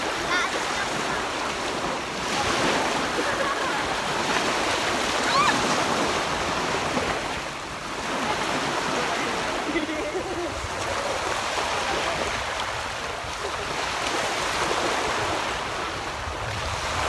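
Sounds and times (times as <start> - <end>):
sea waves breaking on shore: 0.0 - 17.0.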